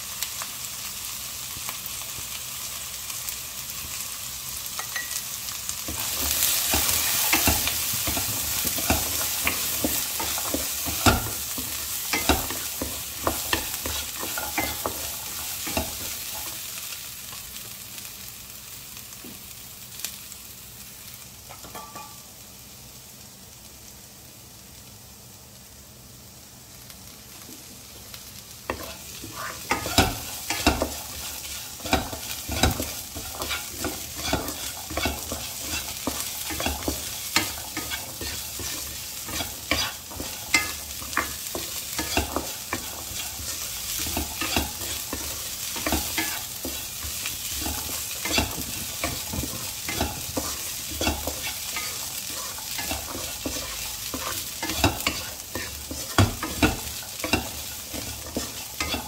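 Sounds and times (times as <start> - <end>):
food sizzling in oil: 0.0 - 59.0
spatula scraping a pan: 28.7 - 59.0.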